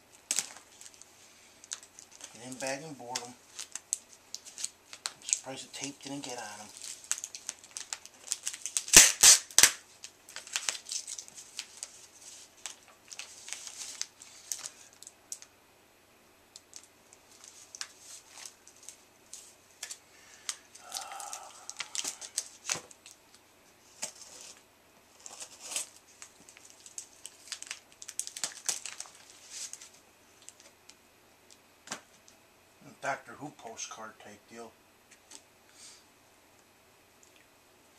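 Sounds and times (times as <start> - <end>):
plastic bags crinkling: 0.2 - 15.5, 16.6 - 30.7.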